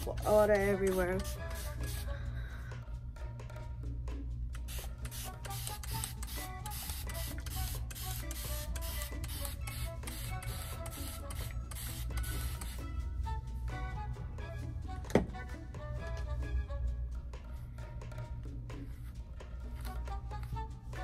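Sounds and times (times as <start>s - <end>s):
background music: 0.0s - 21.0s
spray bottle squirting water: 0.4s - 2.1s, 4.6s - 12.9s.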